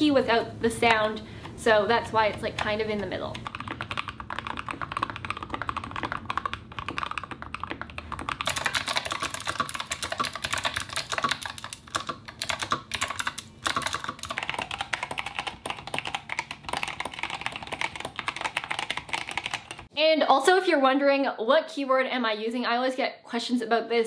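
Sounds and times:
mechanical keyboard typing: 2.1 - 19.9.

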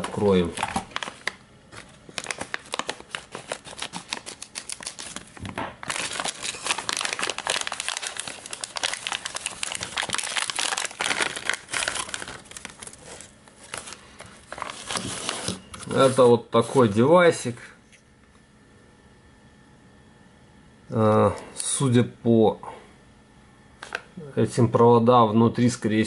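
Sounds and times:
plastic bag crinkling: 0.0 - 16.2.

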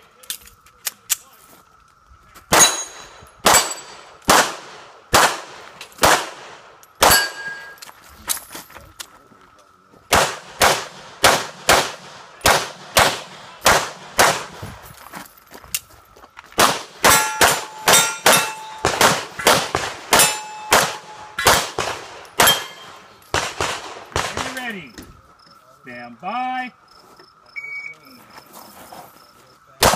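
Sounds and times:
pistol shots: 2.5 - 7.7, 10.1 - 14.6, 16.6 - 24.7
metallic ring of steel target: 2.6 - 4.1, 7.0 - 7.8, 17.0 - 21.6, 22.3 - 23.0.

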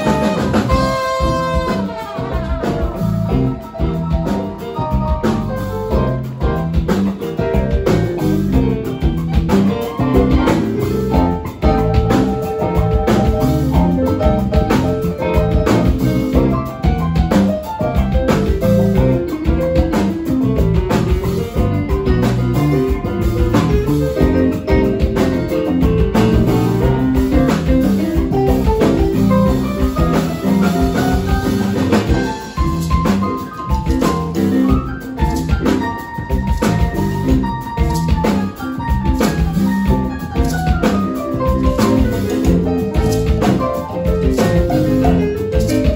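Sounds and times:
saxophone: 0.0 - 5.3
bass guitar: 0.0 - 45.9
drum kit: 0.0 - 45.9
keyboard: 0.0 - 45.9.

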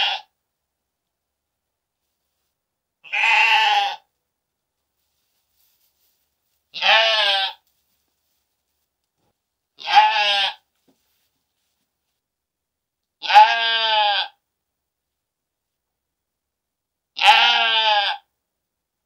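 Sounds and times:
sheep bleating: 0.0 - 0.3, 3.0 - 4.0, 6.8 - 7.6, 9.8 - 10.6, 13.2 - 14.4, 17.2 - 18.3.

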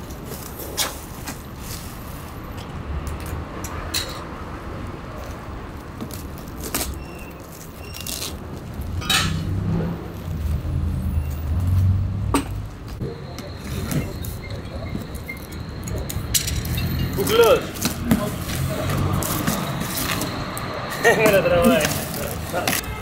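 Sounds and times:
road traffic rumble: 0.0 - 23.0
plastic wrap and cardboard rustling: 21.0 - 23.0.

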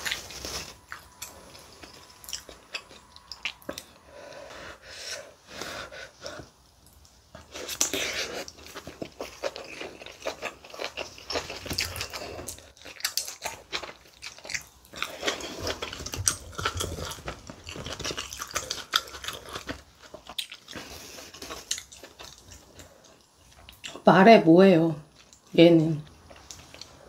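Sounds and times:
close chewing crunches: 0.0 - 4.0, 7.3 - 24.0.

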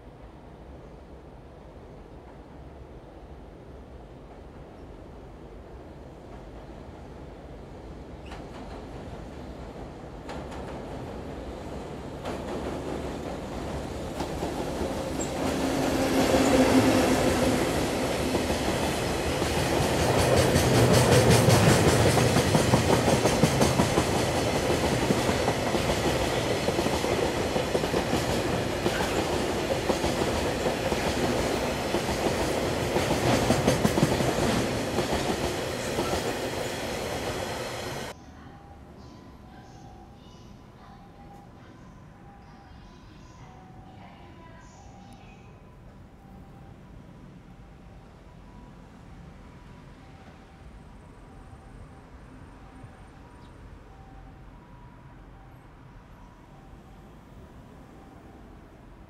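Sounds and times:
train wheels rushing on rails: 6.2 - 38.2.

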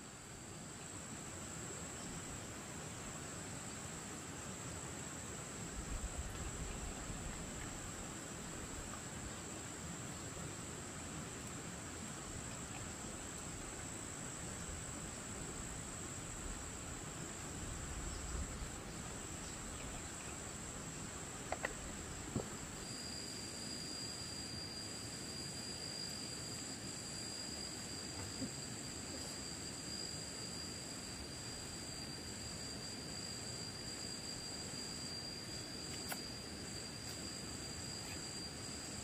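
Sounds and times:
lower-pitched insect: 0.0 - 39.0
insects shrilling high-pitched: 6.4 - 39.0
faint clicks: 21.5 - 21.8.

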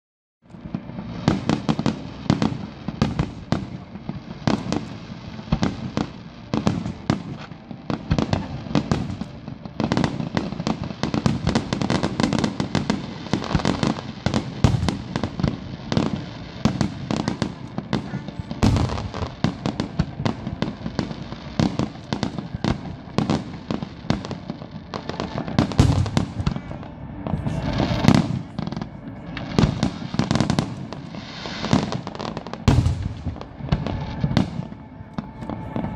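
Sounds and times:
fireworks bangs and crackles: 0.5 - 35.9
heavy firework booms: 5.5 - 24.4, 25.1 - 28.8, 29.5 - 34.7.

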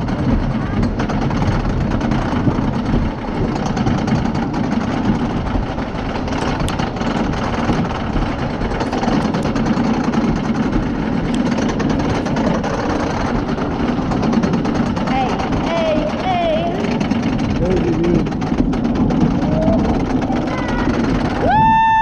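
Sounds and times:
roller coaster wheels rumbling: 0.0 - 22.0
track clacks and rattles: 0.0 - 22.0.

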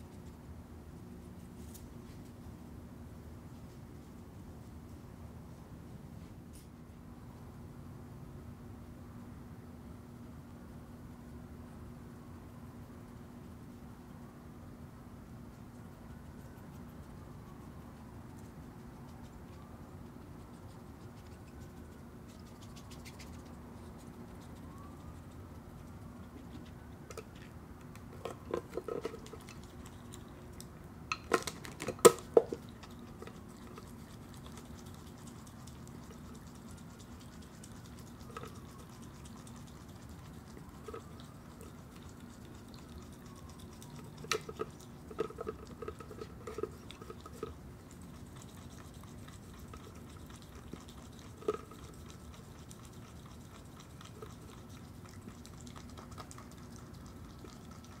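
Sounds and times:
faint steady hum: 0.0 - 58.0
animal crunching food: 15.5 - 58.0.

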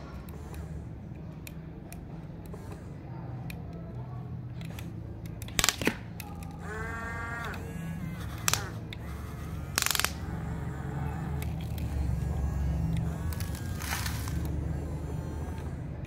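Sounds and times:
toy excavator motors whining: 0.0 - 16.0
low hum: 6.0 - 16.0
sharp clicks: 7.4 - 10.2.

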